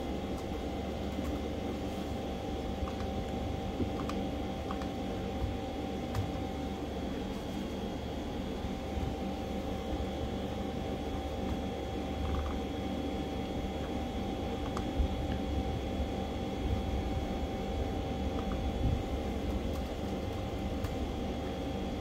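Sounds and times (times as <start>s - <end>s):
fan humming with faint whine: 0.0s - 22.0s
laptop touchpad and keyboard clicks: 2.8s - 5.0s, 12.2s - 12.6s, 14.6s - 15.4s, 18.3s - 18.7s.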